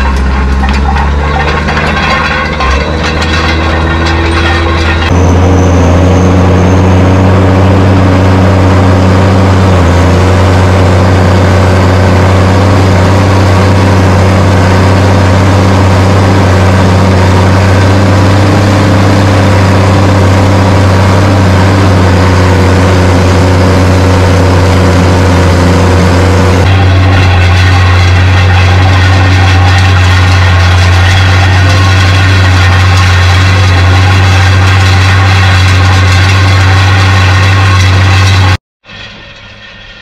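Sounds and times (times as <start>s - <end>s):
tractor diesel engine under load: 0.0s - 40.0s.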